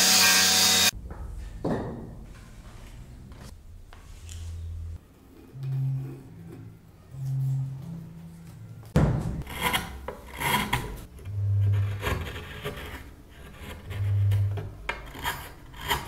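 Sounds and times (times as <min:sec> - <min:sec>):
low hum: 0:00.9 - 0:09.4, 0:11.1 - 0:12.9
chisel scraping wood: 0:09.4 - 0:16.0.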